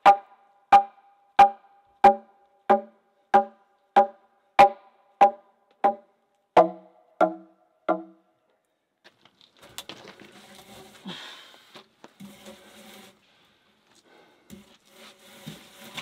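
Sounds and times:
hammer blows on a log: 0.0s - 6.0s, 6.6s - 8.2s.

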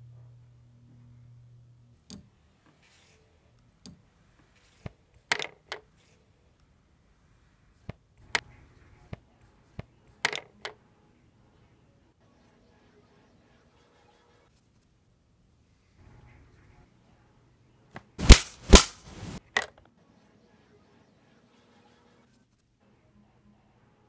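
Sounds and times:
low hum: 0.0s - 2.1s.

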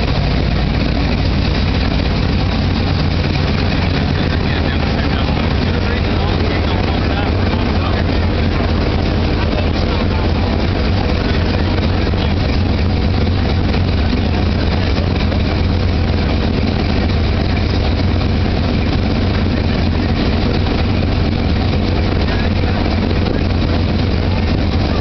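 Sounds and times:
low drone of running machinery: 0.0s - 25.0s.

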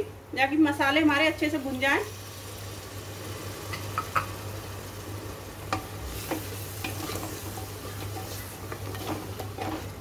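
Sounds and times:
masala sizzling: 0.0s - 10.0s
spatula scraping a pot: 6.2s - 10.0s.

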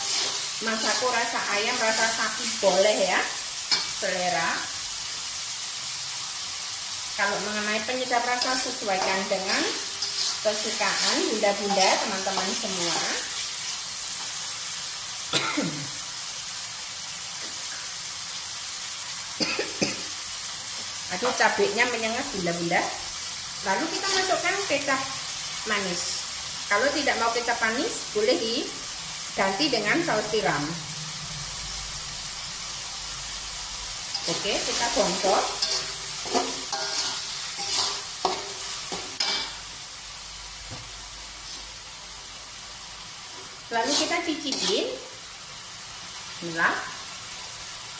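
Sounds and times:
metal spatula scraping a wok: 0.0s - 2.8s, 8.2s - 13.5s, 34.0s - 39.6s, 43.4s - 44.9s
food sizzling in a wok: 0.0s - 47.9s
person coughing: 15.3s - 16.0s, 19.4s - 20.1s.

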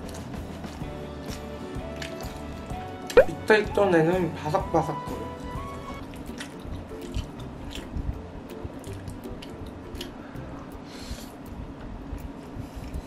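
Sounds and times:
chewing food close up: 0.0s - 3.3s, 6.0s - 10.4s.

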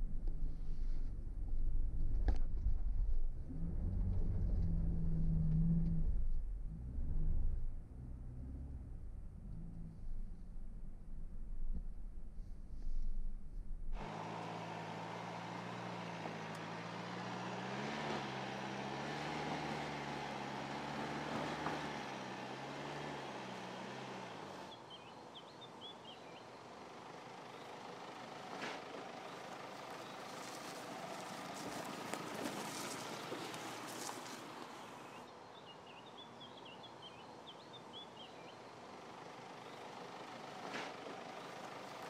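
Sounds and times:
diesel engine running: 13.9s - 35.3s, 38.2s - 42.0s
birds chirping: 24.7s - 42.0s
crackling rustle: 28.6s - 35.2s.

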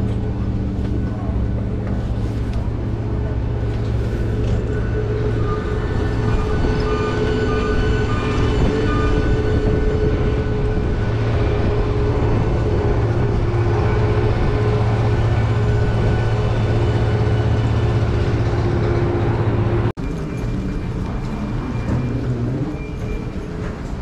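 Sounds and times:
low machine hum: 0.0s - 22.0s.

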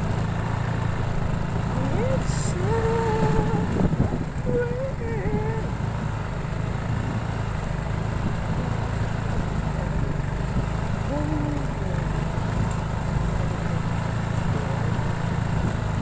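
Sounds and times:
vehicle engine running: 0.0s - 16.0s
person calling out: 1.8s - 3.7s, 11.0s - 12.1s.

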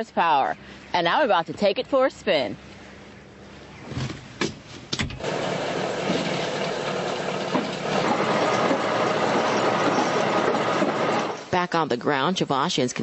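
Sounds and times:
bulldozer diesel engine running: 5.2s - 11.6s.

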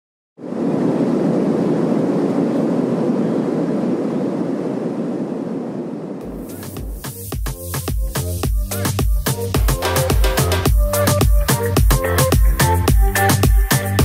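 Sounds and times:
jet engine and airflow rush: 0.4s - 14.0s
dance music with thumping beat: 6.2s - 14.0s.

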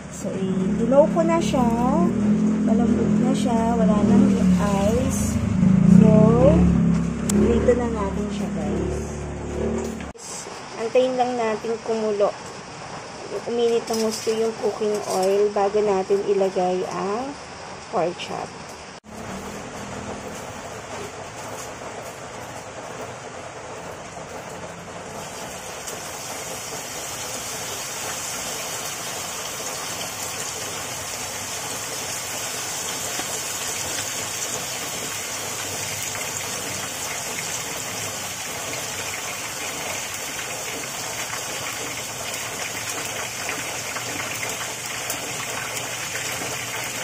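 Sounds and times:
meat sizzling in frying pan: 25.2s - 47.0s.

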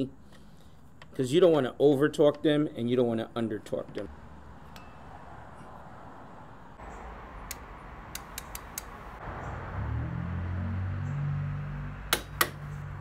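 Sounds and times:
socket wrench clicks: 7.5s - 9.0s.

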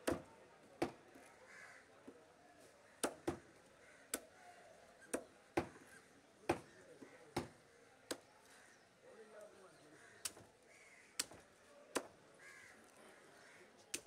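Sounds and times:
cleaver chopping fish on wood: 0.0s - 1.2s, 3.0s - 4.3s, 5.1s - 5.9s, 6.5s - 8.3s, 10.2s - 10.5s, 11.2s - 12.2s.

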